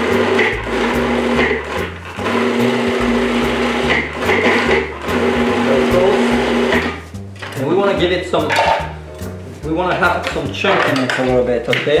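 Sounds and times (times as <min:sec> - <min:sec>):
food processor motor pulsing: 0:00.0 - 0:07.0.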